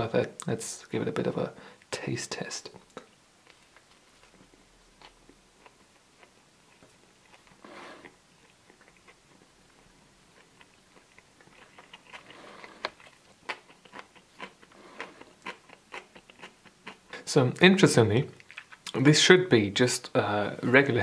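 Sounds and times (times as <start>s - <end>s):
biting and chewing food: 3.4s - 17.2s, 18.3s - 19.0s.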